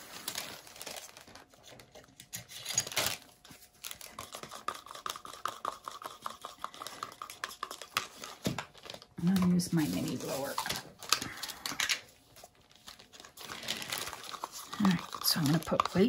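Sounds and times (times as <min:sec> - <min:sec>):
containers and caps rattling: 0:13.2 - 0:16.0.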